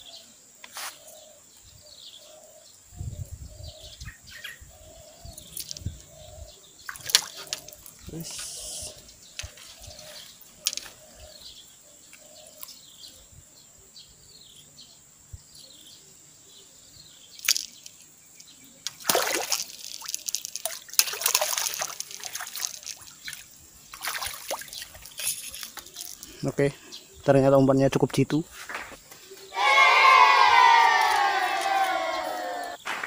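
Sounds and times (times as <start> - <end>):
fish thrashing and splashing: 6.9 - 8.1, 18.9 - 26.3.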